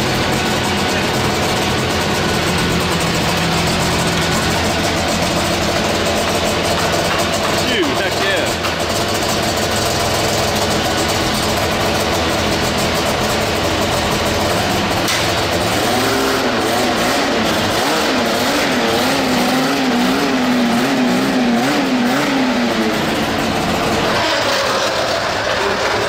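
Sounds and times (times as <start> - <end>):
two-stroke engine running: 0.0 - 26.0.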